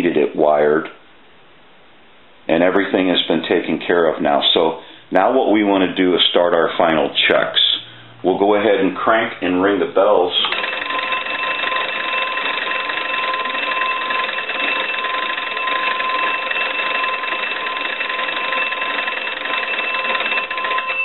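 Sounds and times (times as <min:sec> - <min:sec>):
telephone bells ringing: 0:10.4 - 0:21.0.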